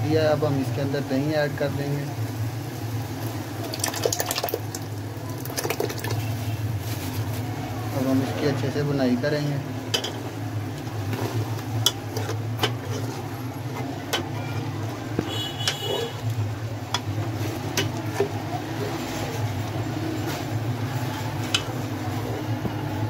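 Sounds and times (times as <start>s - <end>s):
spoon scraping metal pot: 11.1s - 14.6s.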